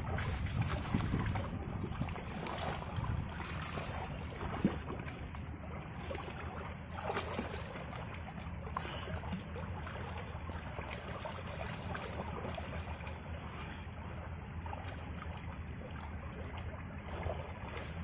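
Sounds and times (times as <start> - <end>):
wind rumbling on microphone: 0.0 - 5.3
water splashing in a stream: 0.0 - 18.0.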